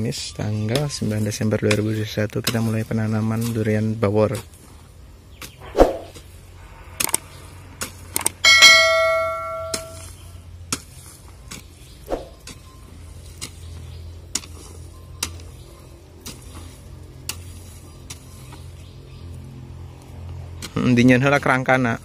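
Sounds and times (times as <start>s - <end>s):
ringing chime: 8.4s - 10.0s.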